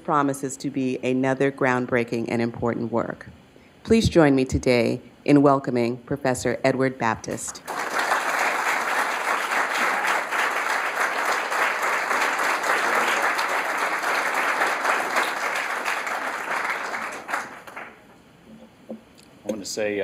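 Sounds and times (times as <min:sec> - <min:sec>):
audience applauding: 0:07.6 - 0:18.1.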